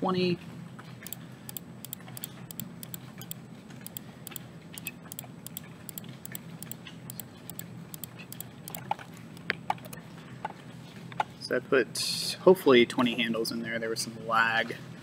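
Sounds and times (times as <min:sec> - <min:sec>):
steady low hum: 0:00.0 - 0:15.0
computer mouse clicking: 0:01.0 - 0:10.0.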